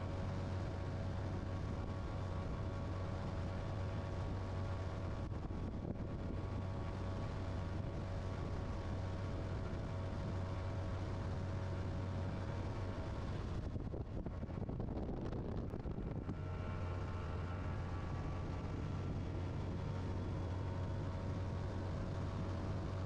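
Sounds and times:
outboard motor running: 0.0s - 23.0s
rush of wind and water: 11.7s - 16.3s.

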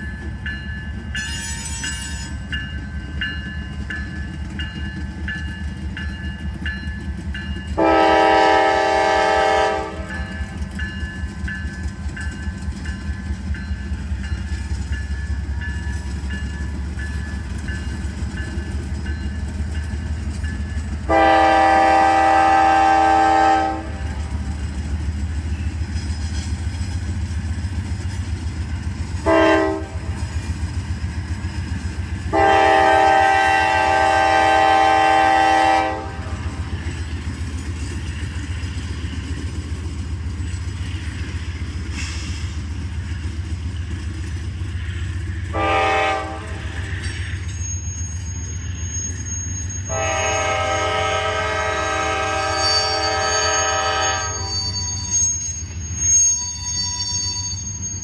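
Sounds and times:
freight train rumbling: 0.0s - 58.0s
train air horn blasts: 7.8s - 10.2s, 21.0s - 24.3s, 29.2s - 30.2s, 32.3s - 36.6s, 45.5s - 46.9s, 49.9s - 54.8s.

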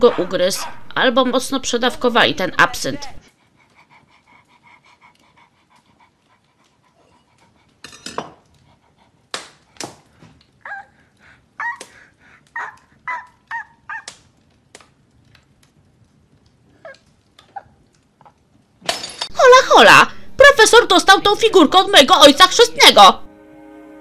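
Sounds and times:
dog yapping and barking: 0.0s - 0.9s, 10.6s - 11.0s, 11.6s - 14.3s
dog sniffing huffs: 3.3s - 10.3s.

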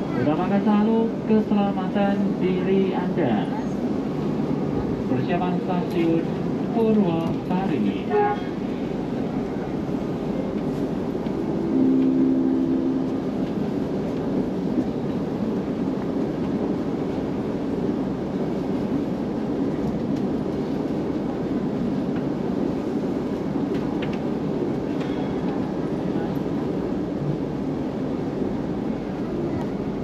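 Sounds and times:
train rumble and rail noise: 0.0s - 30.0s
low two-pitched tone: 11.4s - 13.6s.

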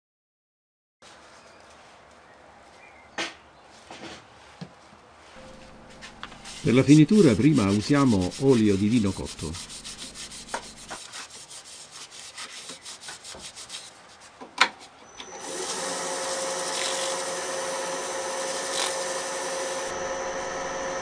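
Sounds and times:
rag rubbing wood: 5.4s - 14.0s
wood lathe whining: 5.5s - 11.0s, 15.1s - 21.0s.

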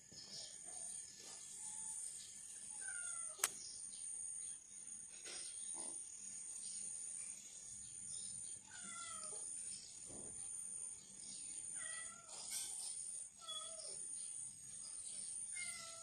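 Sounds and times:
cat meowing: 8.7s - 9.5s, 11.8s - 12.5s, 15.6s - 16.0s.

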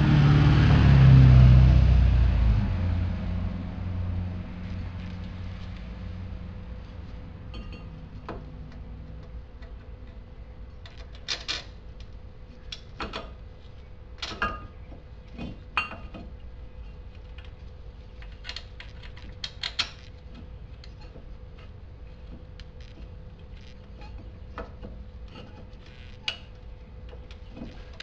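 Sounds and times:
steady low hum: 0.0s - 28.0s.

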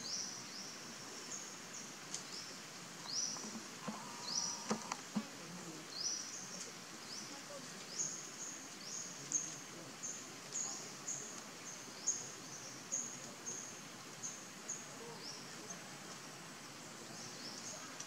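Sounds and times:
small bird chirping: 0.0s - 4.9s
faint forest background noise: 0.0s - 18.0s.

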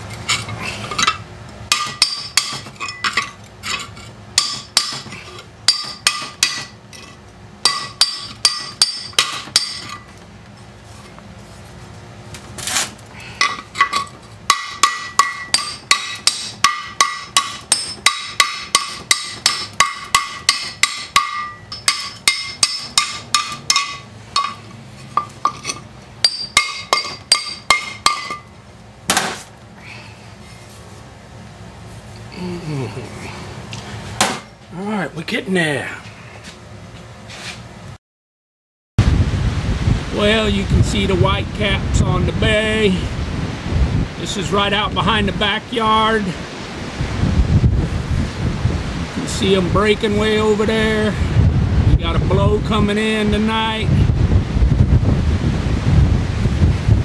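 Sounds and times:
hammer striking metal blade: 1.0s - 3.8s, 4.4s - 5.1s, 5.7s - 6.8s, 7.6s - 10.0s, 13.4s - 28.5s.

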